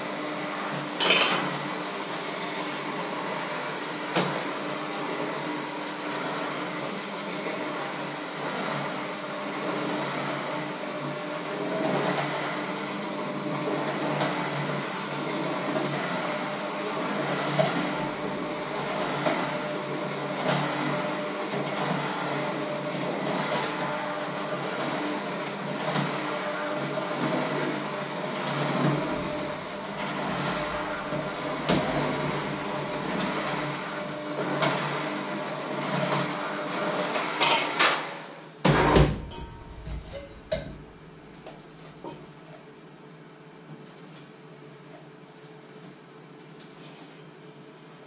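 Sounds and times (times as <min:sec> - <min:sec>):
electric hand mixer running: 0:00.0 - 0:37.8.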